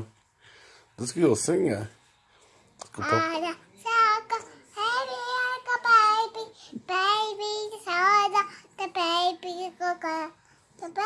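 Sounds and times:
toddler singing: 3.0s - 11.0s.

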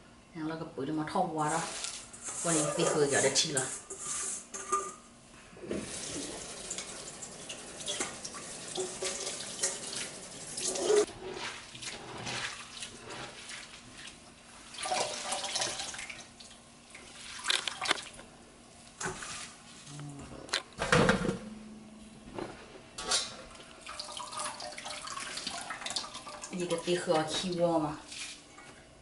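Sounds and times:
tap water running into a sink: 5.7s - 11.5s, 14.8s - 16.3s, 23.8s - 27.5s.

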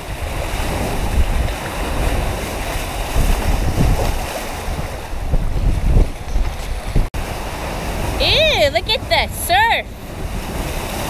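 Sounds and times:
waves and water rushing: 0.0s - 11.0s
wind buffeting microphone: 0.0s - 11.0s.

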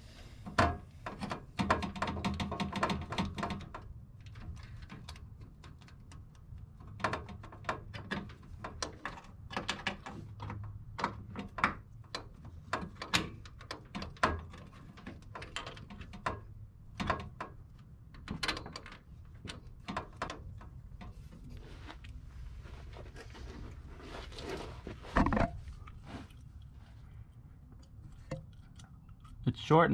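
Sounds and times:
low steady hum: 13.5s - 29.9s.

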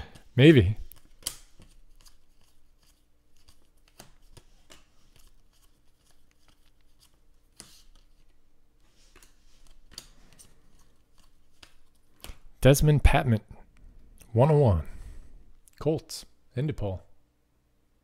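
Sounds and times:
cards sliding and clicking: 0.2s - 12.5s.

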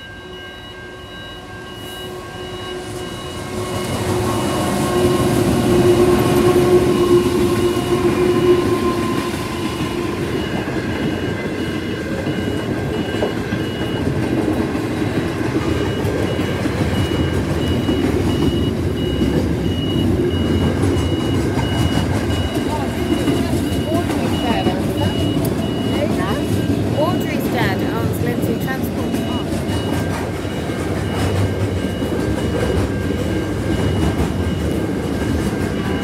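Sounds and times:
diesel locomotive engine droning: 0.0s - 36.0s
train wheels rumbling and clattering: 2.5s - 36.0s
level crossing bell dinging: 16.1s - 36.0s.

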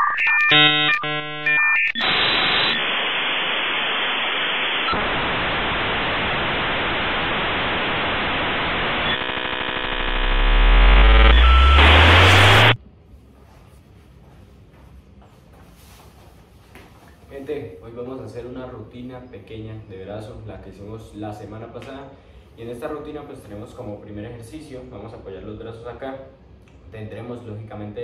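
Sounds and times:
electronic buzzing: 0.0s - 12.8s
static hiss: 2.0s - 12.8s
glitchy electronic stutter: 9.0s - 12.8s
deep rising sweep: 9.2s - 12.8s.

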